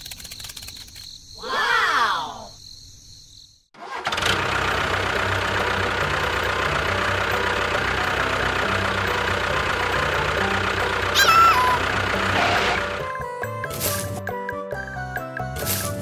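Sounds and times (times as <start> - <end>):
model tractor engine running: 3.8 - 13.1.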